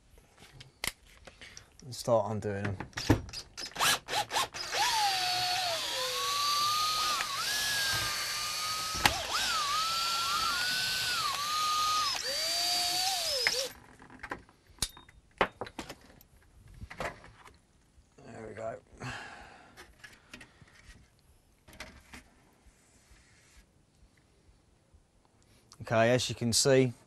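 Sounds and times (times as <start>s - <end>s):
cordless drill motor whine: 3.8s - 13.8s.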